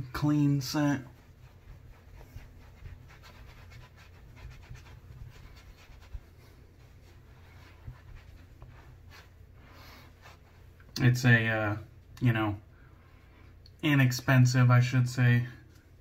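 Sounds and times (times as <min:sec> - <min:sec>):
towel rustling on face: 0:00.0 - 0:10.9.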